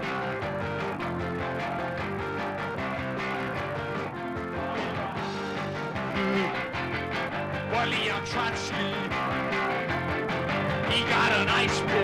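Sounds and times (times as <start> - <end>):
electric guitars: 0.0 - 12.0
punk rock band playing: 0.0 - 12.0
steady drums: 0.0 - 12.0.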